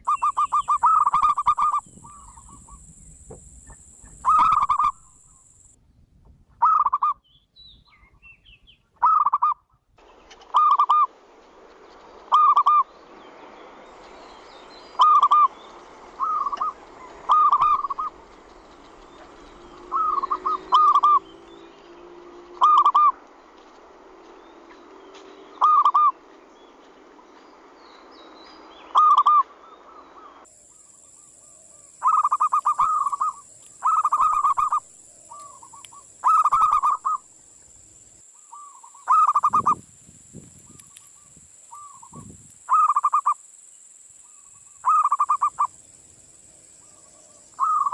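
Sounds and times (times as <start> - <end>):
doves cooing: 0.0 - 2.9, 3.6 - 5.6, 16.2 - 21.3, 22.6 - 23.1, 31.5 - 37.3, 38.5 - 39.8, 41.7 - 43.4, 44.3 - 45.8, 46.8 - 47.9.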